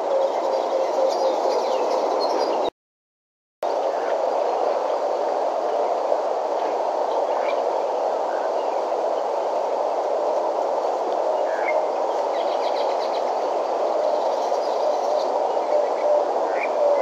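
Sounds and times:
outdoor noise hiss: 3.7s - 17.0s.

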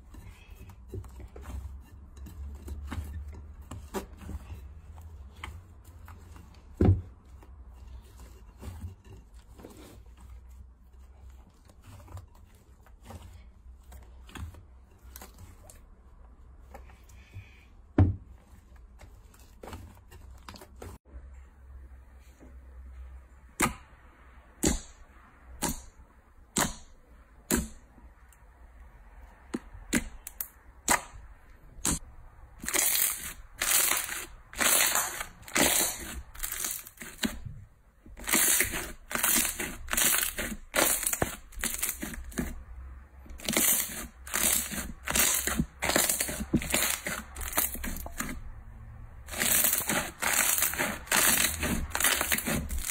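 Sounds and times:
slime squelching and crackling: 32.6s - 37.5s, 38.1s - 42.6s, 43.3s - 48.4s, 49.2s - 52.9s.

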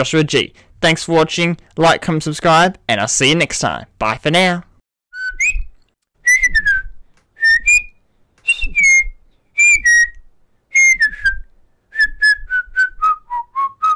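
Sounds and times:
person whistling a tune: 5.1s - 13.9s.

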